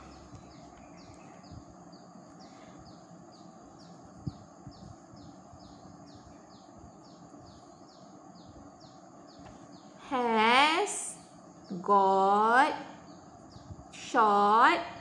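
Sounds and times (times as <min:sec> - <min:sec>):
bird chirping: 0:00.0 - 0:10.4
low steady background hum: 0:00.0 - 0:15.0.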